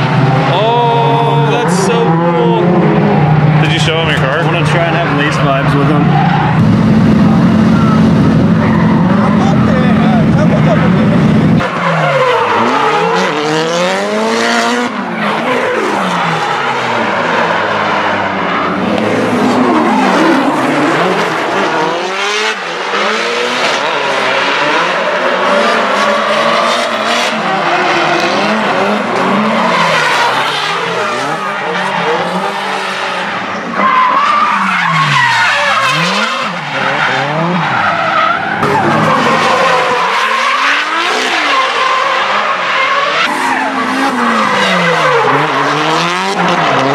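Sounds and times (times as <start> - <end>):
engines revving: 0.0 - 46.9
tyres screeching: 33.7 - 46.9.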